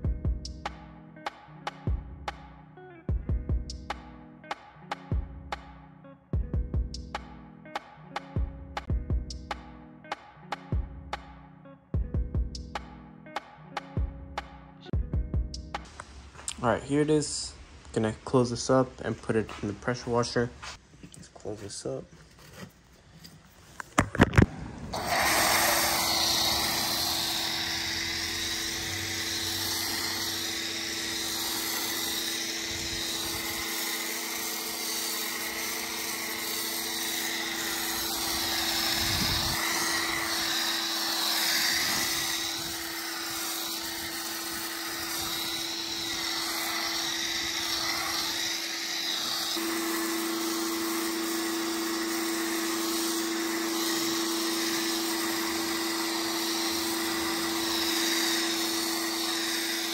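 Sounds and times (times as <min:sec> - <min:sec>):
pressure washer motor humming: 0:24.3 - 0:59.9
foam cannon spraying hiss: 0:24.9 - 0:59.9.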